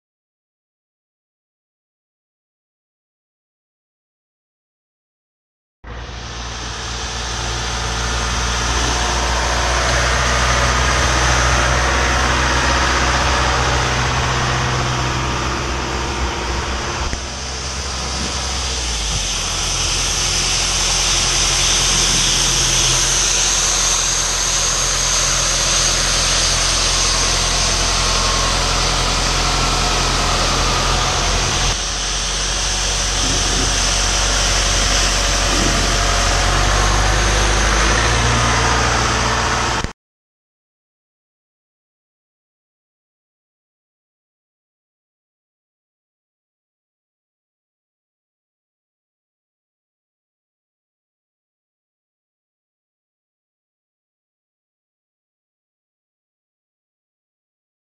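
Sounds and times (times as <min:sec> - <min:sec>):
tractor diesel engine running: 0:05.9 - 0:39.9
sweeper brushes hissing on asphalt: 0:16.6 - 0:37.9.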